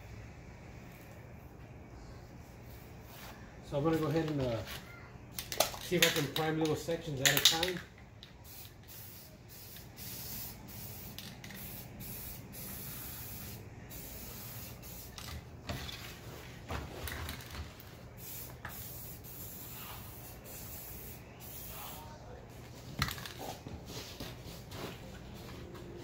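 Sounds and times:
aerosol spray can hissing: 8.4 - 15.3, 18.2 - 22.1.

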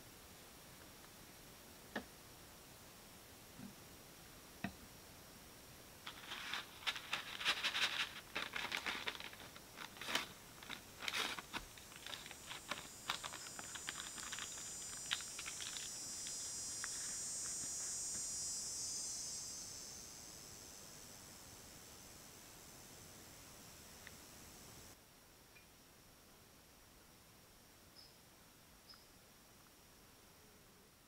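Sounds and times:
faint high-pitched hiss: 0.0 - 31.0
packaging crinkling: 6.1 - 17.6.

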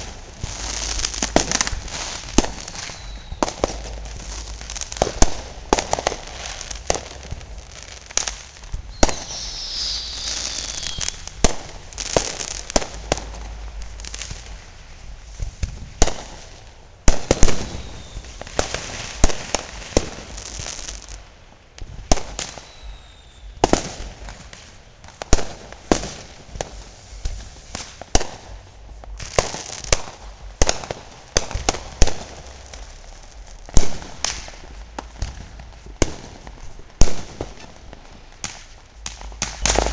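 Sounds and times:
firecracker crackling: 0.0 - 39.9
firework bangs: 0.0 - 39.9
firework whistles gliding down: 0.6 - 5.4, 8.9 - 12.8, 17.3 - 19.2, 22.3 - 23.6, 39.3 - 39.9.

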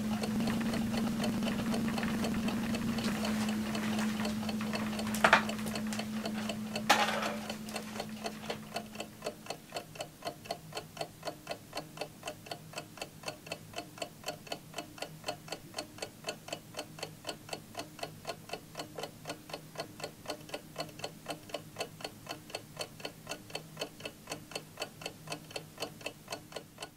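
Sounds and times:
low hum: 0.0 - 8.2
alarm clock ticking: 0.0 - 26.9.

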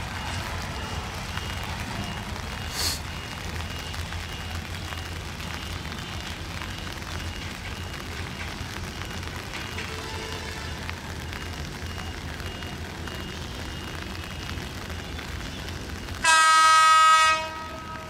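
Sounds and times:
diesel train rumble: 0.0 - 18.0
rain hiss: 0.0 - 18.0
sharp hiss: 2.7 - 3.0.

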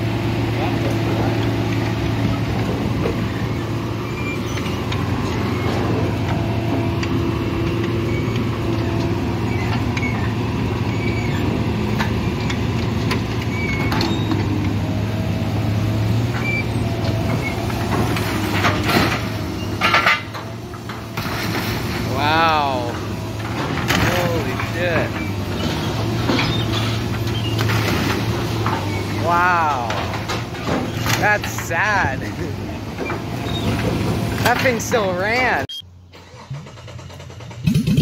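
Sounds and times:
heavy machine engine running: 0.0 - 38.0
metal clanks and crunches: 16.2 - 22.1, 22.7 - 35.5.

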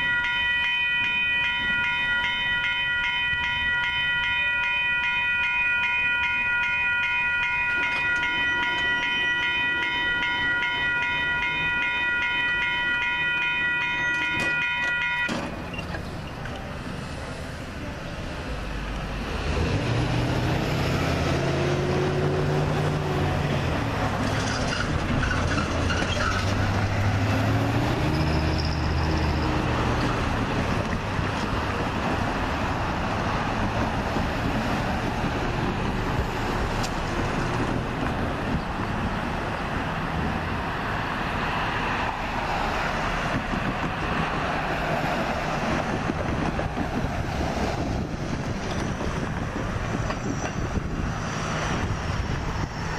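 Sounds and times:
steady traffic noise: 0.0 - 52.9
vehicles driving past: 15.3 - 52.9.

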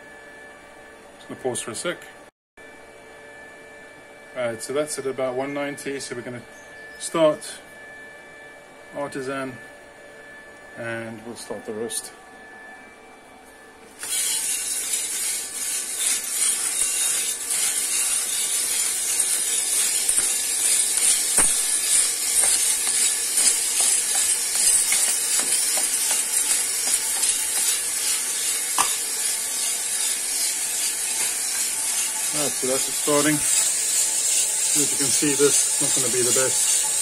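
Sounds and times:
coffee beans tumbling in roaster drum: 13.9 - 37.0.

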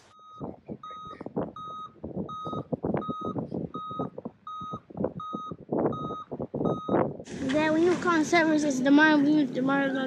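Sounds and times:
reversing alarm beeping: 0.1 - 7.0.

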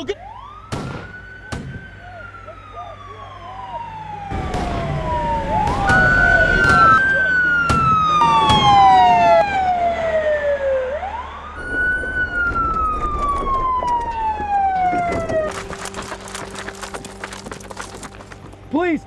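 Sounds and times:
police siren wailing: 0.0 - 18.4
sharp cracks: 4.4 - 9.6, 15.0 - 18.6.

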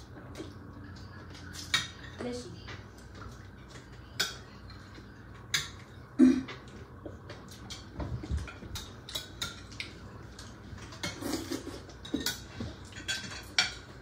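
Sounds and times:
cutlery clinking on plates: 3.2 - 14.0.

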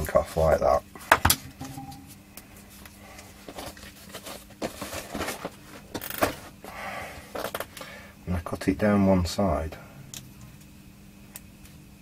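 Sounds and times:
faint low hum: 0.0 - 5.3.

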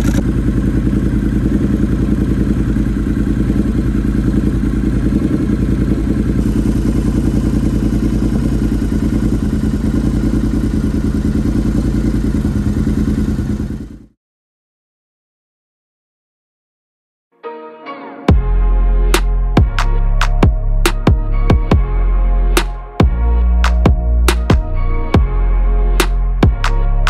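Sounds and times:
motorcycle engine idling: 0.0 - 14.2.

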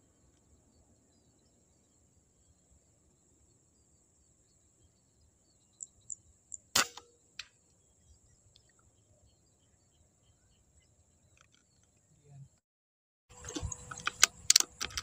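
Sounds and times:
insect drone: 0.0 - 12.4
air rifle shot: 6.8 - 7.1.

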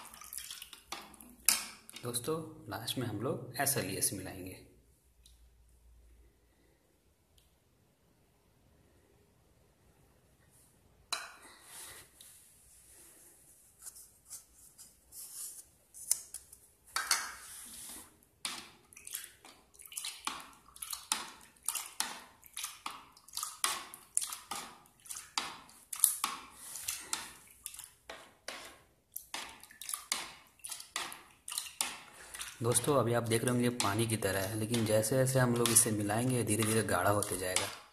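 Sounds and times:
ladle stirring liquid in bowl: 0.0 - 2.3, 16.2 - 37.9.

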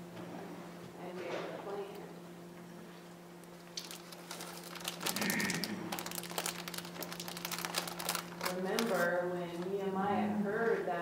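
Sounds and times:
low electrical hum: 0.0 - 11.0
crinkling rustle: 3.4 - 9.9.

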